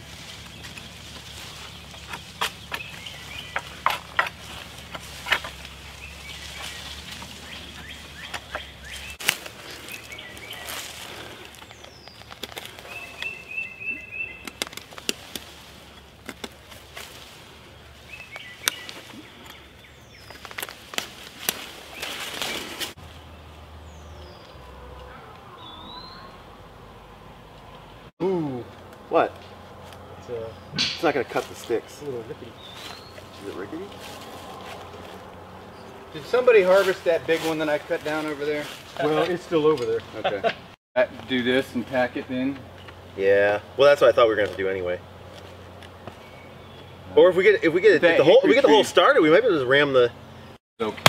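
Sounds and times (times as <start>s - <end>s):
small branches cracking: 0.0s - 25.5s
birds chirping: 0.0s - 51.0s
leaves and brush rustling: 0.0s - 51.0s.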